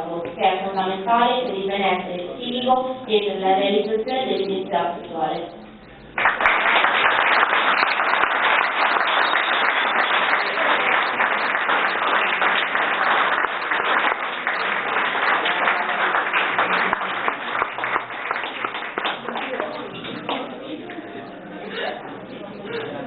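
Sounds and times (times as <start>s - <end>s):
audience applauding: 6.1s - 21.0s.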